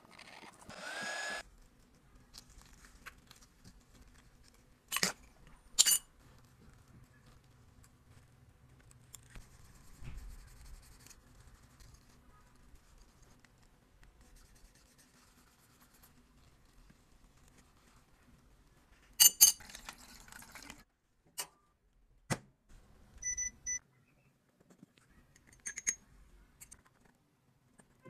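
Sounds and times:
faint scratching: 6.2s - 18.5s
short electronic beeps: 23.2s - 23.8s.

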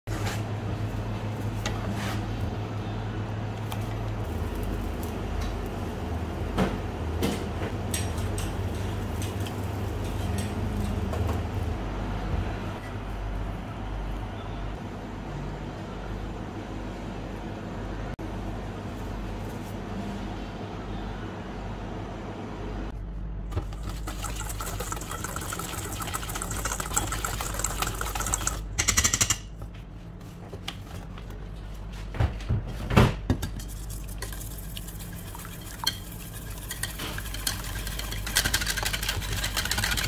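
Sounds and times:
steady low hum: 0.4s - 40.0s
wire whisk scraping a metal bowl: 33.6s - 40.0s.

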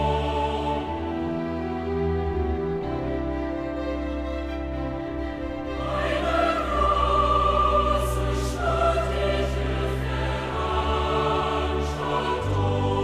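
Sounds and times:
choir singing long held notes: 0.0s - 3.2s, 5.1s - 13.0s
orchestral backing: 0.0s - 13.0s
strings: 0.0s - 13.0s.

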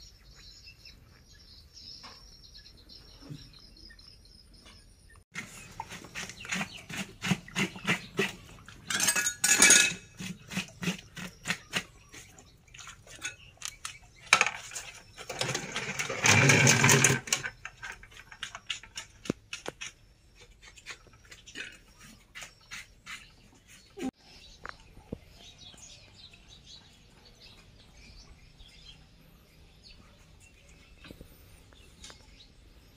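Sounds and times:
knife scraping skin: 19.6s - 24.1s.

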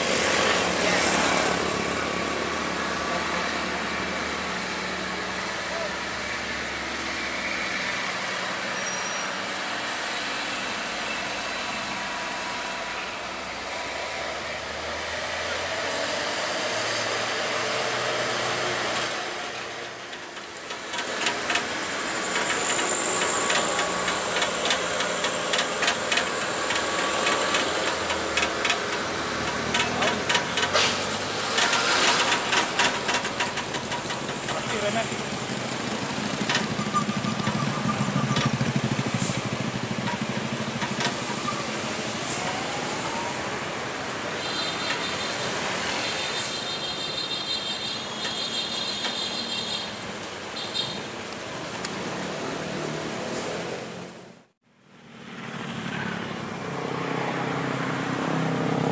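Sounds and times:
vehicle engines running: 0.0s - 58.9s
sharp irregular clicks and knocks: 20.1s - 35.1s, 40.0s - 41.4s.

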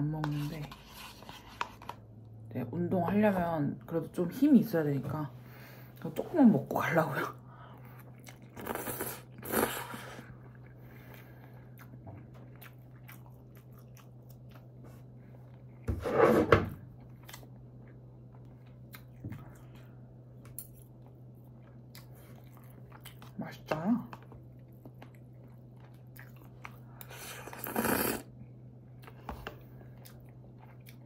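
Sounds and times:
steady low hum: 0.0s - 31.0s
person chewing: 7.8s - 15.9s, 16.9s - 19.9s, 20.8s - 23.3s, 24.1s - 28.3s, 28.9s - 31.0s.

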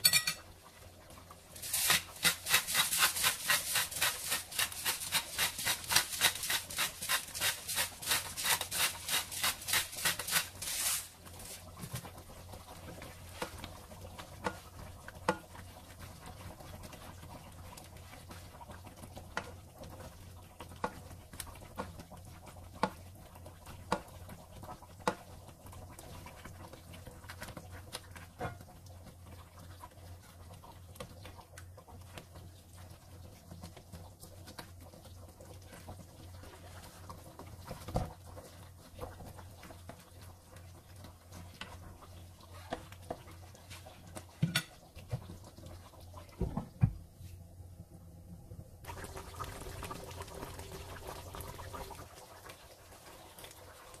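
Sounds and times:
spoon scraping a pan: 0.0s - 0.4s.

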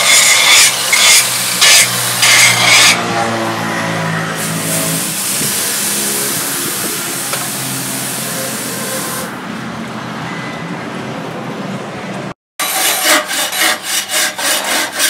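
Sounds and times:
hot blade hissing in water: 4.4s - 9.3s.

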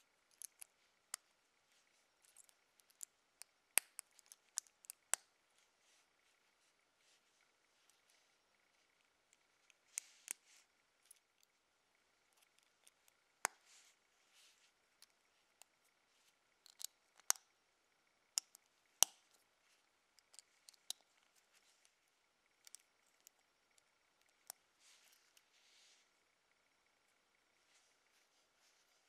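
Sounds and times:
plastic bricks clicking and snapping: 16.6s - 17.4s.

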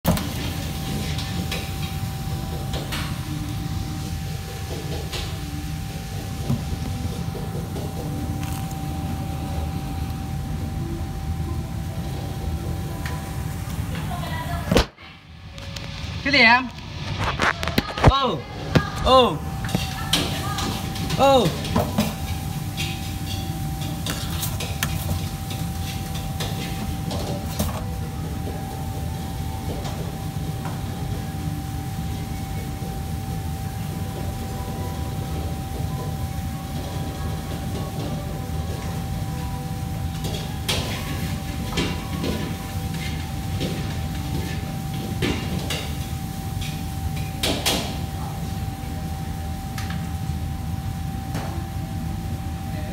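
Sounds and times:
mid-pitched hum: 0.1s - 24.0s
low mechanical rumble: 0.4s - 14.7s
dishes and utensils clinking: 19.6s - 27.9s.

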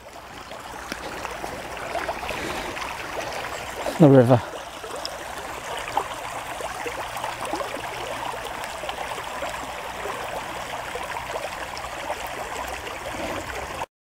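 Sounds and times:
stream running over stones: 0.0s - 13.9s.

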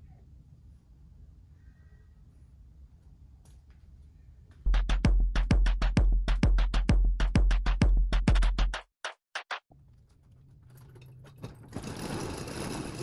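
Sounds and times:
electronic music with heavy bass: 4.7s - 8.8s
roll-up garage door rattling: 9.8s - 13.0s.

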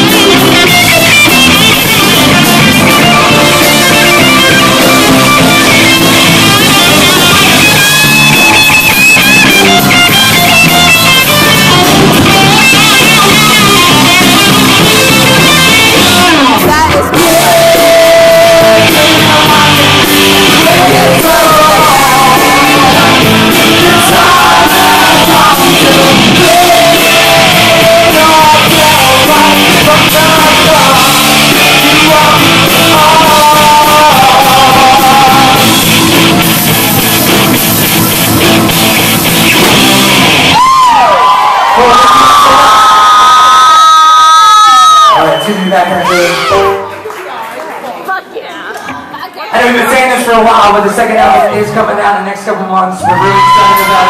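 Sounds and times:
lead singer: 0.0s - 37.7s, 53.0s - 54.0s
keyboard: 0.0s - 40.6s
bass guitar: 0.0s - 47.2s, 53.0s - 54.0s
drums: 0.0s - 47.2s, 53.0s - 54.0s.

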